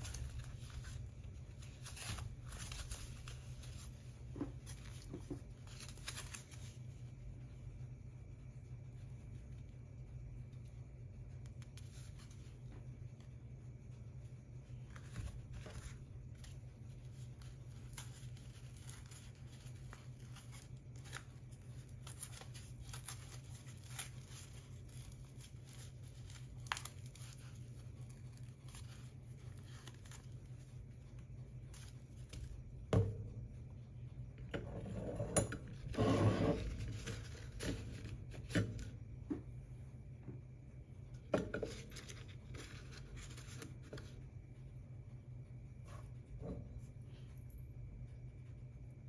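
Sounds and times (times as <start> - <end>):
paper rustling and crinkling: 0.0 - 7.2, 11.3 - 32.8, 35.7 - 39.0, 41.2 - 44.3
low steady hum: 0.0 - 49.0.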